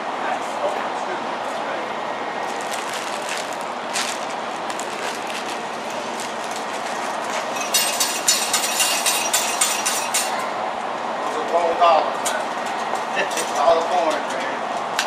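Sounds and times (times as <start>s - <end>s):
steady background noise: 0.0s - 15.0s
metallic clinks and rattles: 7.5s - 10.4s.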